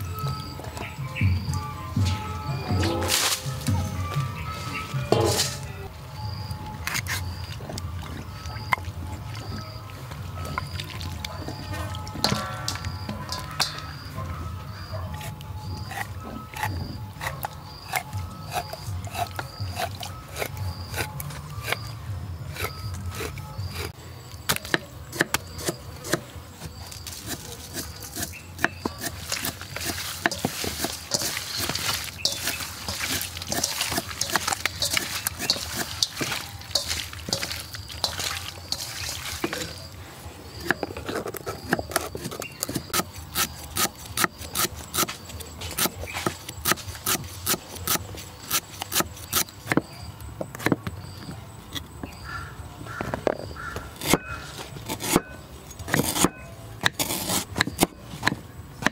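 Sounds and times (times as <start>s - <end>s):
eel pieces rubbed in steel bowl: 27.0s - 39.8s.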